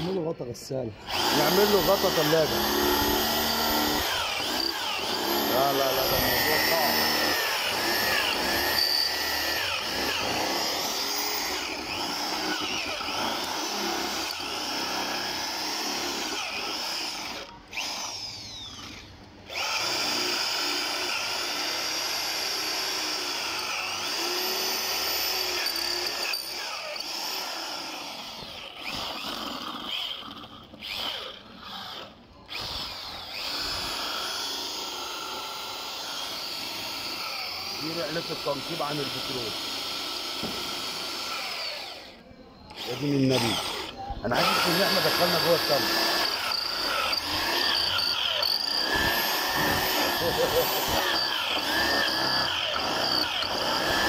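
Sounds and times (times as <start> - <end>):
electric drill grinding into metal: 1.0 - 54.0.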